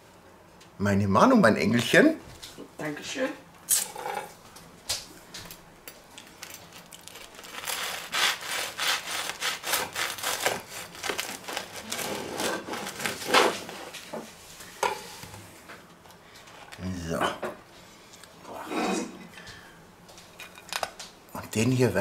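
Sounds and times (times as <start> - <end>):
bread knife sawing through crust: 7.4 - 13.9.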